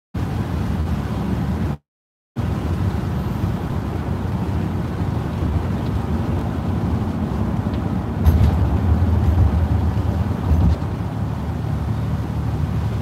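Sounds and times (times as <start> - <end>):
car tyre noise on wet road: 0.2 - 1.8, 2.4 - 13.0.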